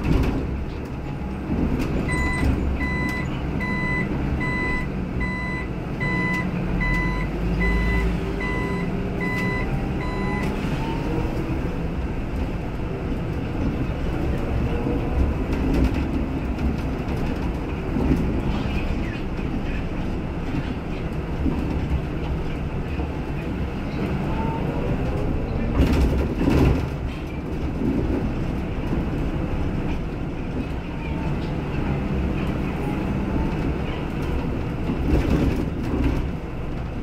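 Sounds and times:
bus engine rumble: 0.0 - 37.0
turn-signal warning beeps: 2.1 - 10.6.

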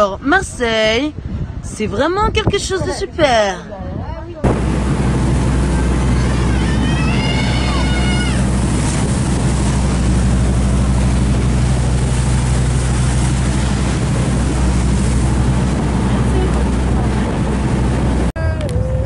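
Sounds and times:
boat engine droning: 4.4 - 19.0.

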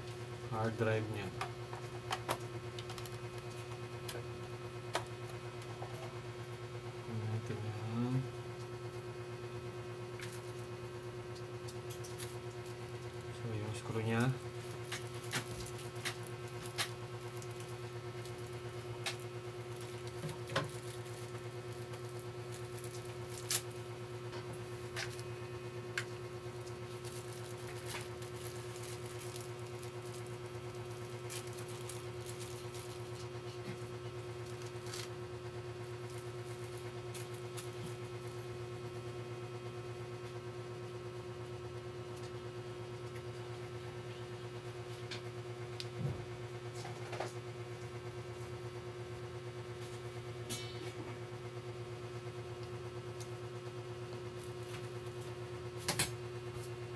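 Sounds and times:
steady low hum: 0.0 - 56.9.

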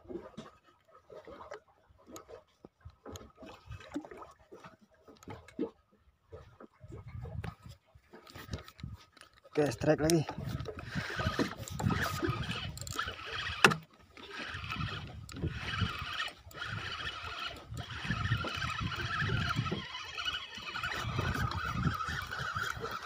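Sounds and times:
fishing reel whirring: 8.7 - 23.0.

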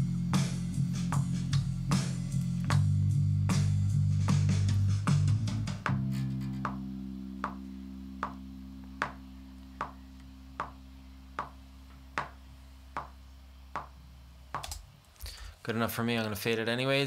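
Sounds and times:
electric bass note ringing: 2.5 - 14.5.

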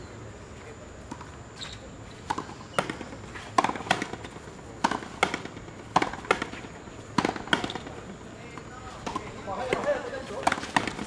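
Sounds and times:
rackets striking ball: 2.3 - 11.0.

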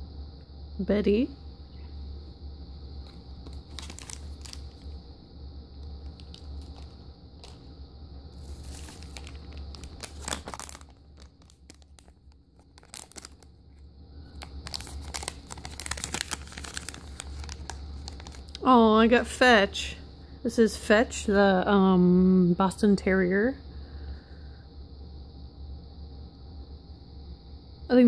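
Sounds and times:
foil wrapper crinkling and tearing: 3.0 - 5.0, 6.0 - 7.6, 8.4 - 18.6.

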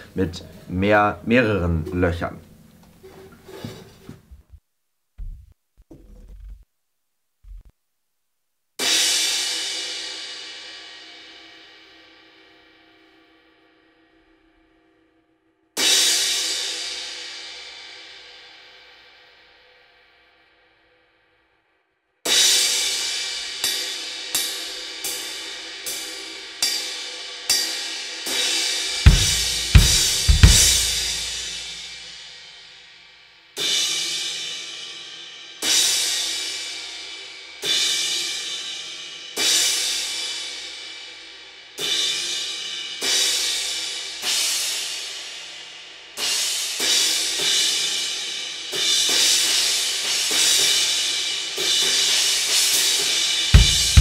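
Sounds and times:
kick drum thumps: 5.2 - 6.6, 29.1 - 31.6, 53.6 - 54.0.

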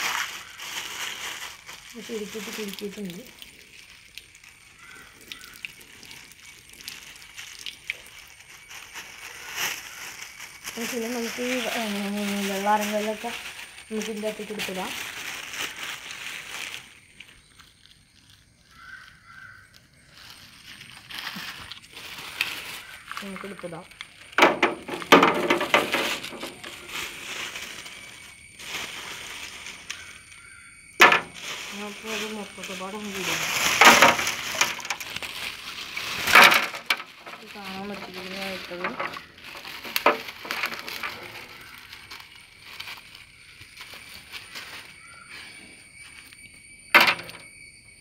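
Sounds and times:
water dripping and trickling: 0.0 - 45.2
pebbles clicking: 31.0 - 42.4.

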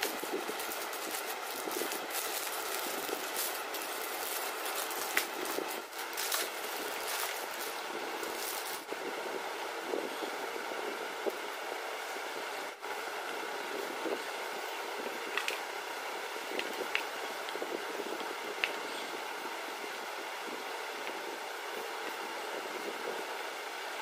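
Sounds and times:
plastic packaging crinkling: 0.0 - 8.9
steady background hiss: 0.0 - 24.0.

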